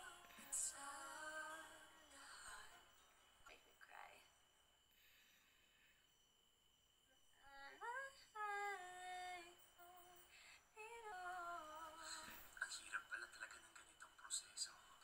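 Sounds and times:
woman humming a tune: 7.4s - 12.5s.

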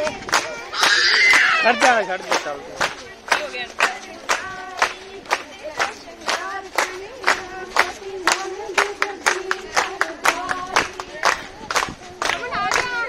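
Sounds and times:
women singing: 0.0s - 0.4s, 3.0s - 13.0s
women clapping in time: 0.0s - 13.0s.

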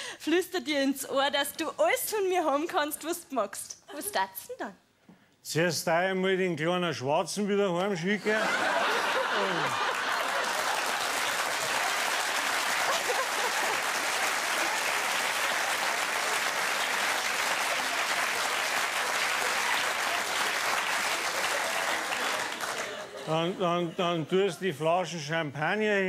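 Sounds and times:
audience applauding: 8.3s - 23.5s.

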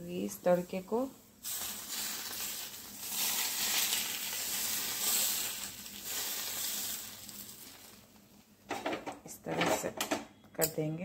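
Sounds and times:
spices sizzling in hot oil: 0.0s - 8.4s.

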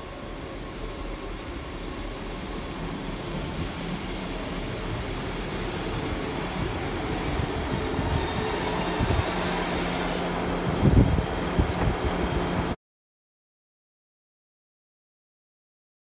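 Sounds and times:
diesel train rumble: 0.0s - 12.8s
high brake squeal: 6.9s - 10.3s.

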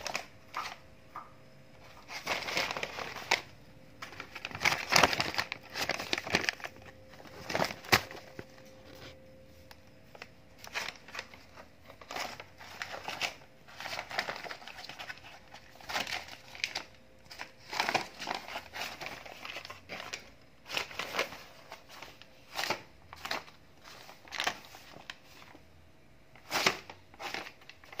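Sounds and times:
paper bag crinkling and rustling: 0.0s - 25.7s, 26.3s - 28.0s.

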